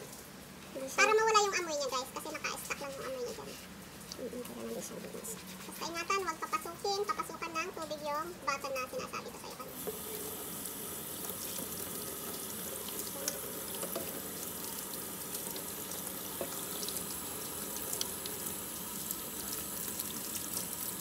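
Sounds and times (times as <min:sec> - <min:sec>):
tap running into steel sink: 0:13.2 - 0:14.3, 0:16.4 - 0:16.9.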